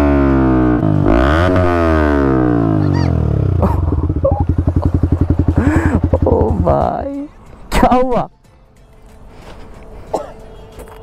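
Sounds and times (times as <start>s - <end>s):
motorcycle engine revving and idling: 0.0s - 7.3s.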